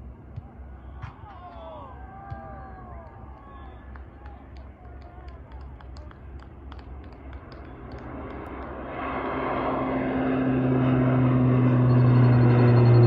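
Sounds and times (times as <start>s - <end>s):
turboprop plane taking off: 5.6s - 13.0s.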